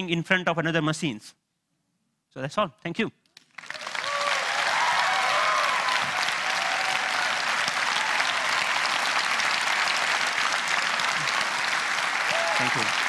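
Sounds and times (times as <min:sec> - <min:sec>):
audience clapping: 0:03.3 - 0:13.0
audience cheering: 0:03.6 - 0:13.0.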